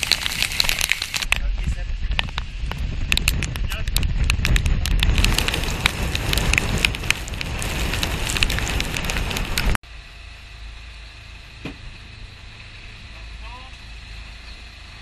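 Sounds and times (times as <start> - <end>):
strong wind on microphone: 0.0 - 9.8.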